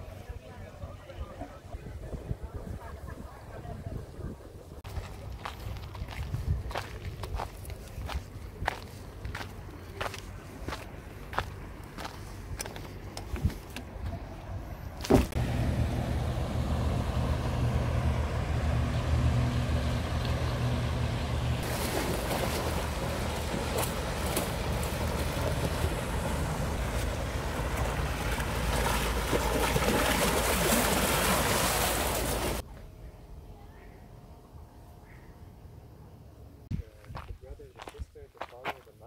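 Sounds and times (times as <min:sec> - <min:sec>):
boat engine running: 0:14.0 - 0:33.4.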